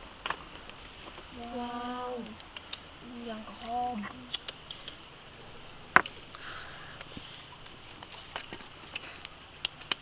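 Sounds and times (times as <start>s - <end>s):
sharp pops from fire: 0.0s - 10.0s
wood fire crackling: 0.0s - 10.0s.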